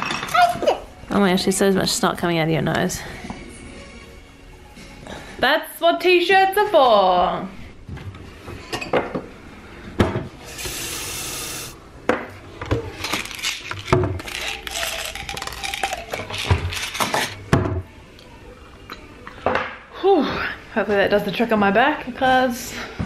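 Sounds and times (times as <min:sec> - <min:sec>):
pill bottle clicking and rattling: 0:13.3 - 0:17.1.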